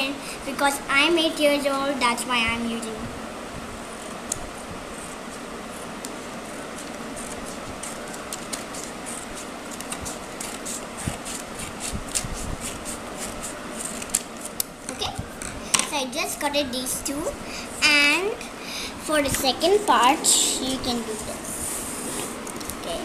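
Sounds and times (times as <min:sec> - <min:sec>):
steady background hiss: 0:00.0 - 0:23.0
scissors snipping paper: 0:06.8 - 0:14.7.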